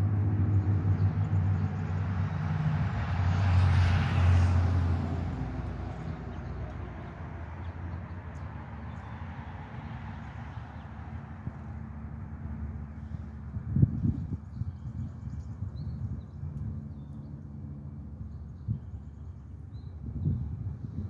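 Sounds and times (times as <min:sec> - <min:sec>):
vehicle driving past: 0:00.0 - 0:13.4.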